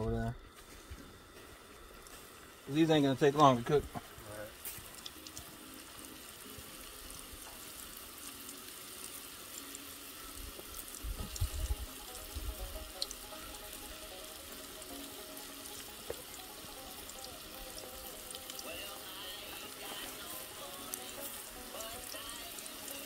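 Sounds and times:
fish sizzling in hot oil: 0:01.2 - 0:23.0
oil popping: 0:03.2 - 0:23.0.

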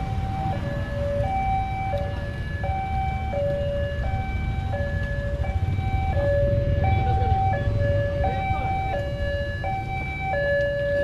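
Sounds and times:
two-tone level crossing alarm: 0:00.0 - 0:11.0
motorcycle engines idling: 0:04.2 - 0:10.4.

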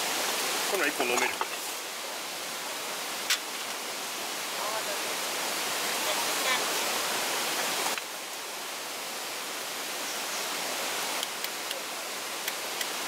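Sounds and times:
mountain stream rushing: 0:00.0 - 0:13.0.

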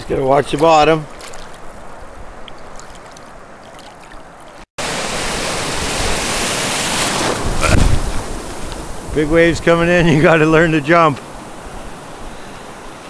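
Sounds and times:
sea water washing: 0:00.2 - 0:13.0
ocean surf breaking: 0:04.8 - 0:13.0
wind buffeting microphone: 0:05.2 - 0:13.0.

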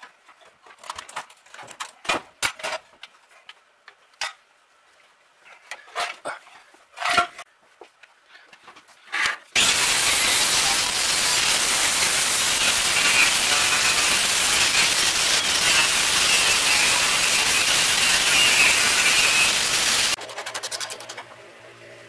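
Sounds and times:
angle grinder grinding steel: 0:09.6 - 0:21.0.

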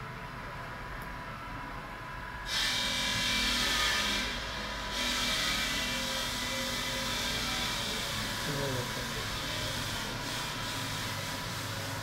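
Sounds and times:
constant machine hum: 0:00.0 - 0:12.0
power tool grinding hiss: 0:02.5 - 0:12.0.

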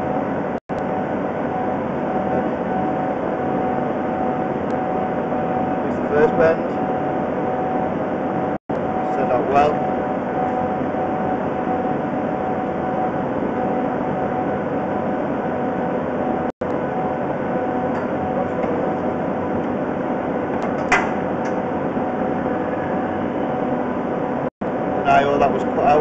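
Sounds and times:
steady pitched tones: 0:00.0 - 0:20.6
steady mechanical drone: 0:00.0 - 0:26.0.

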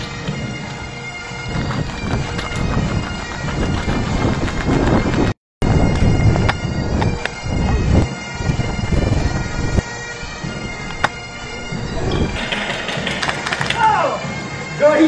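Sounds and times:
thudding footsteps: 0:00.0 - 0:14.5
bagpipe music: 0:00.0 - 0:15.0.

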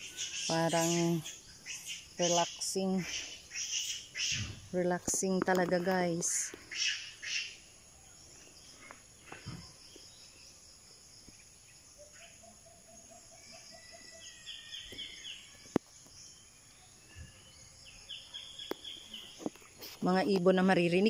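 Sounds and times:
high bird chirping: 0:00.0 - 0:04.8
birds calling: 0:00.0 - 0:05.0, 0:06.0 - 0:10.2, 0:11.4 - 0:19.9.

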